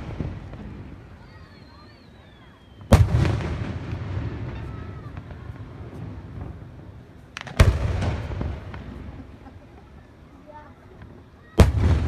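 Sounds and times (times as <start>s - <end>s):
small firework cracks: 0.0s - 12.0s.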